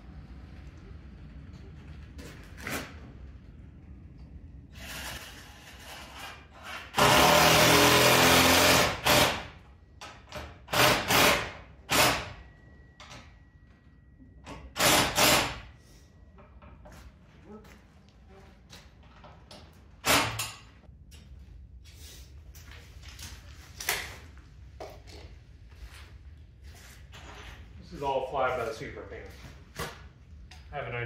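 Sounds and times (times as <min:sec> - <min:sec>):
power drill running: 0:06.7 - 0:09.4, 0:14.8 - 0:15.6.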